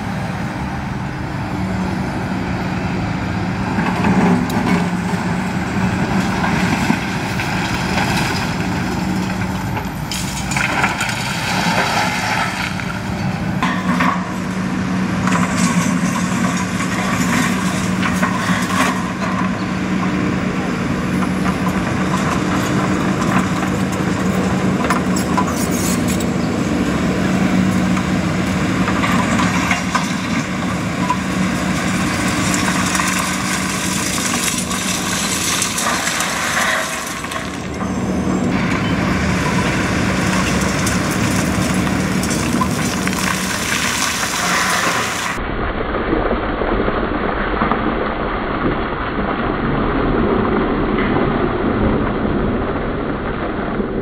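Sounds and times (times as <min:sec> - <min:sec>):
excavator diesel engine running: 0:00.0 - 0:45.4
broken concrete rattling and pouring: 0:03.8 - 0:45.4.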